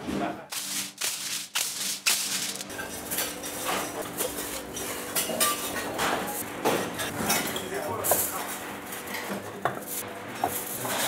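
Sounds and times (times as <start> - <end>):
aluminium foil crinkling: 0.5 - 2.7.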